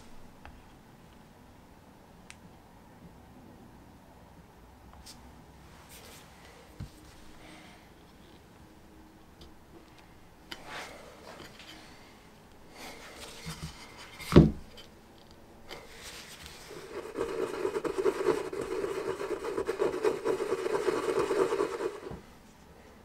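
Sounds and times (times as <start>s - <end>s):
fast rubbing on wood: 16.6s - 22.2s.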